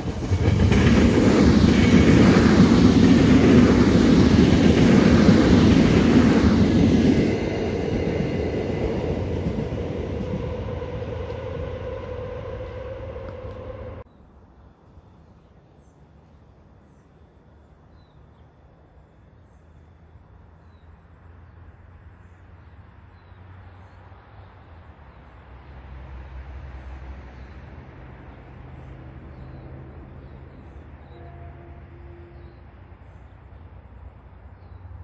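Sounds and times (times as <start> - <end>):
distant low engine rumble: 0.0 - 14.3.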